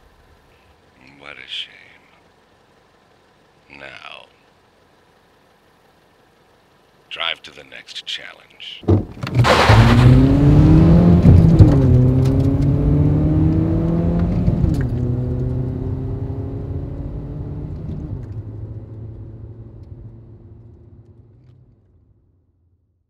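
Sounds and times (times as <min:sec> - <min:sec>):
car engine accelerating: 0:09.2 - 0:21.8.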